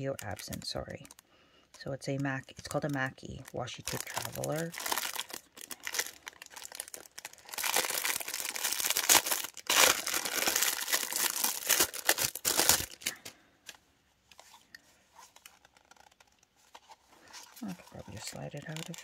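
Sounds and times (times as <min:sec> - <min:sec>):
plastic wrapping crinkling: 0:00.0 - 0:19.0.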